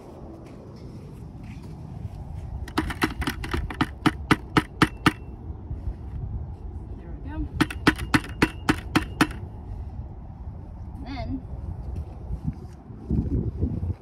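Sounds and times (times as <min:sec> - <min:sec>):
wind rumble on microphone: 0:00.0 - 0:14.0
metal probe knocking plastic bucket: 0:02.7 - 0:05.2, 0:07.6 - 0:09.4.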